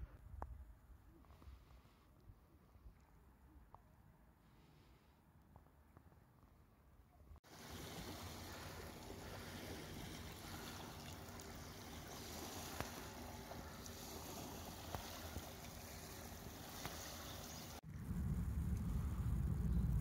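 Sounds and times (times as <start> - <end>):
small waves lapping on pebbles: 7.4 - 17.8
light water splashes: 7.4 - 20.0.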